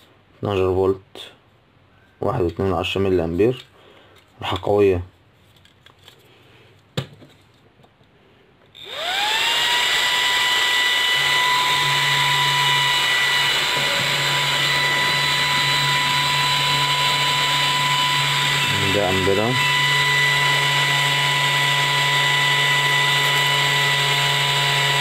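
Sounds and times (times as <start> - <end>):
cooling fan whining: 8.8 - 25.0.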